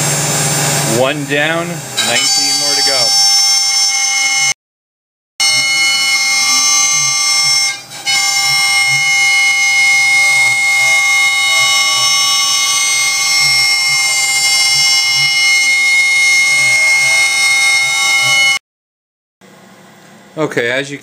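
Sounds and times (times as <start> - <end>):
router spindle whining: 0.0 - 4.6, 5.4 - 18.6
lower tones sliding up and down: 8.2 - 18.6.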